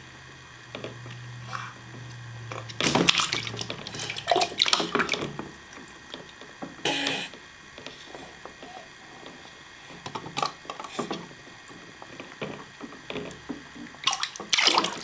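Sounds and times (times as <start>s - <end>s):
water splashing in a bathtub: 2.5s - 6.8s, 8.3s - 15.0s.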